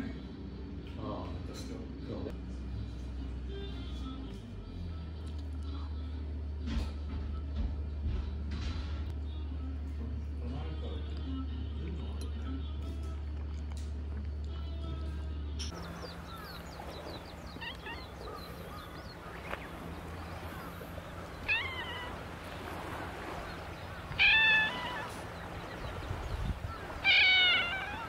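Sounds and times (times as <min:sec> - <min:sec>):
cat meowing: 0:17.2 - 0:19.5, 0:20.1 - 0:28.0.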